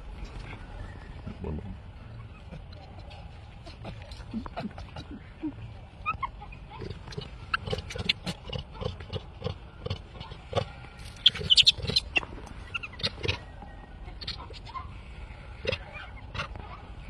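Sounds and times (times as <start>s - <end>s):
infant monkey squealing: 11.2s - 13.4s.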